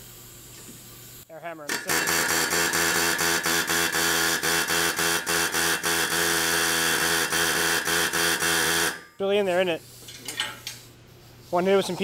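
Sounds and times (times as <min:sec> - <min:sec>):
pneumatic air hammer rattling: 0:01.7 - 0:09.1.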